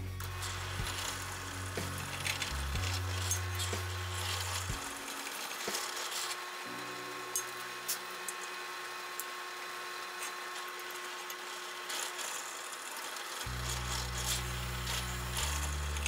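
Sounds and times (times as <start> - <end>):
quiet background music: 0.0 - 10.0, 13.3 - 16.0
metal parts clinking: 0.3 - 6.4.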